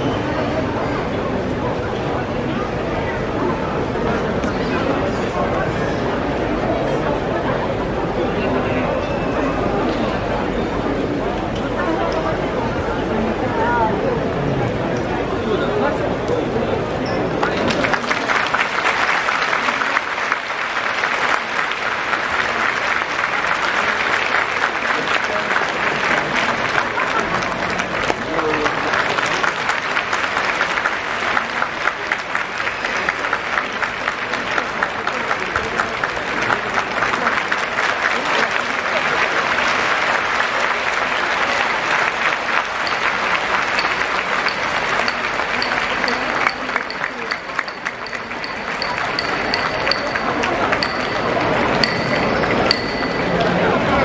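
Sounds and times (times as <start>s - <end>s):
audience applauding: 17.3s - 54.0s.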